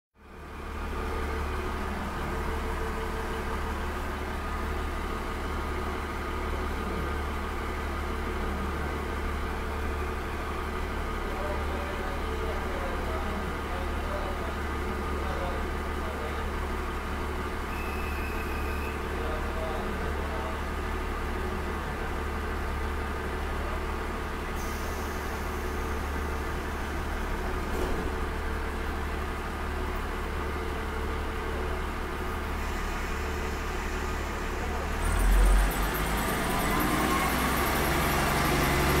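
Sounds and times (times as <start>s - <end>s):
diesel engine idling: 0.2s - 39.0s
brief knock: 27.7s - 28.2s.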